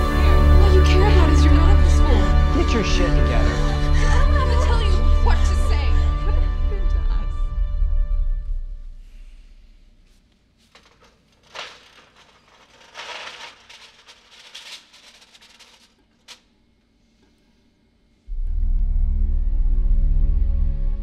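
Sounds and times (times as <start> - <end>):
film score music: 0.0 - 9.8, 18.3 - 21.0
faint handling sounds: 9.1 - 18.3.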